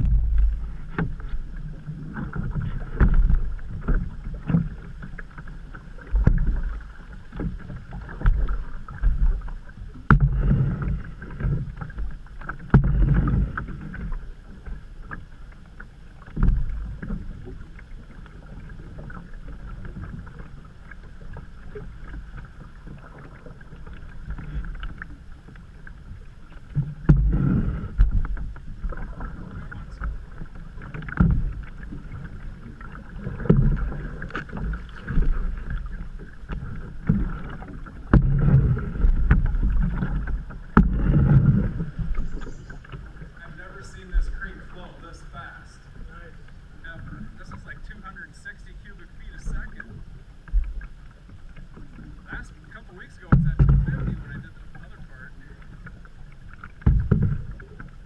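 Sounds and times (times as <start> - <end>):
low rumbling surges: 0.0 - 1.6
paddle knocking canoe hull: 0.0 - 58.0
paddle splashing through water: 0.0 - 58.0.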